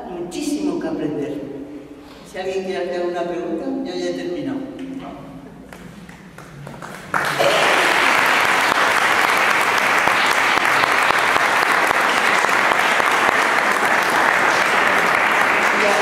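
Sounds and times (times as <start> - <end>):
congregation applauding: 6.1 - 16.0.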